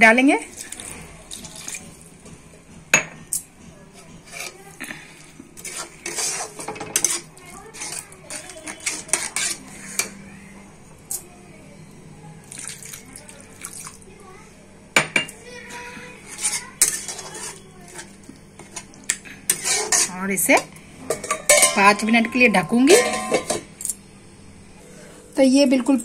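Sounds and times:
metal spatula scraping metal pan: 0:04.2 - 0:04.6, 0:05.6 - 0:10.1, 0:16.2 - 0:18.9, 0:19.5 - 0:23.6.

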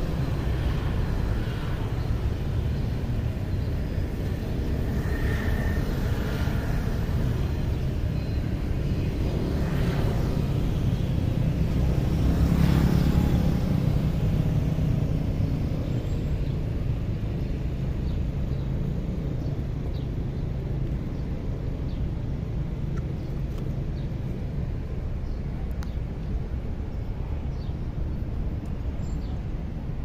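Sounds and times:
street traffic rumble: 0:00.0 - 0:30.0
vehicle passing by: 0:09.0 - 0:16.0.

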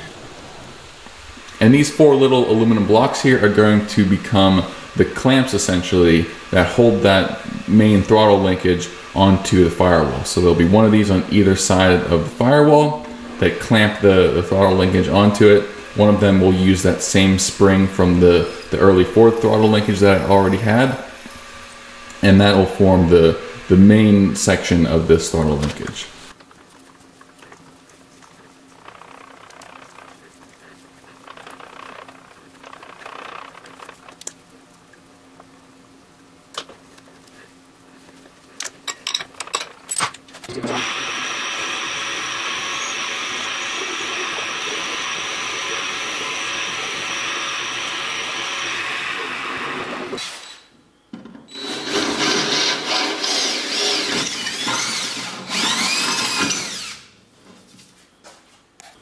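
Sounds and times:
power tool whining in bursts: 0:00.9 - 0:26.4, 0:40.5 - 0:50.7, 0:51.5 - 0:57.2
milling machine drilling metal: 0:01.5 - 0:26.3, 0:40.5 - 0:50.6, 0:51.5 - 0:57.1.

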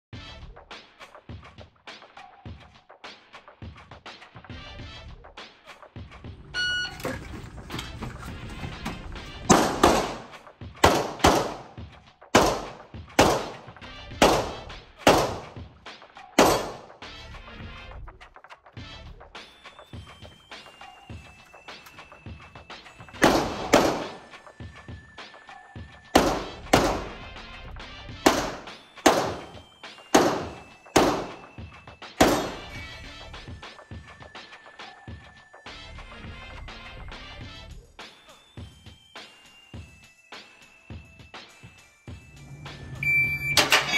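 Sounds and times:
shot timer beep: 0:06.5 - 0:07.2, 0:43.0 - 0:43.9
pistol shots echoing indoors: 0:09.5 - 0:11.8, 0:12.4 - 0:15.6, 0:16.4 - 0:16.9, 0:23.2 - 0:24.4, 0:26.2 - 0:27.2, 0:28.3 - 0:31.6, 0:32.2 - 0:32.8.

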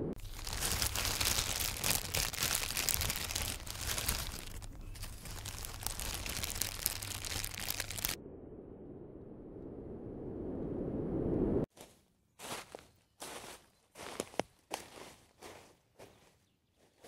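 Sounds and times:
plastic film crinkling: 0:00.2 - 0:08.2.

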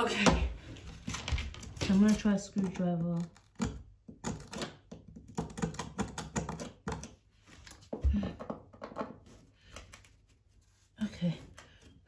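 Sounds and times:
screwdriver scraping and prying board: 0:01.1 - 0:07.2.

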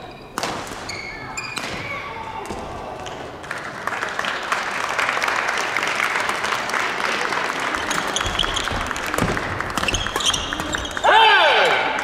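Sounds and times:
crowd applauding: 0:03.0 - 0:11.0.

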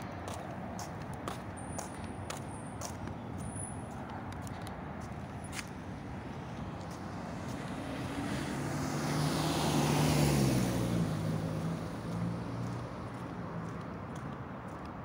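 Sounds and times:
car driving past: 0:06.8 - 0:13.8.

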